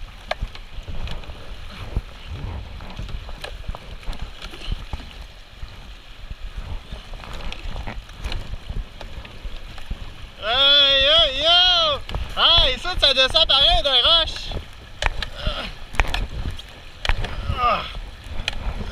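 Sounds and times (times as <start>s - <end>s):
paddle strokes splashing: 0.0s - 18.9s
river rapid rushing: 0.0s - 18.9s
low rumble: 1.2s - 4.2s.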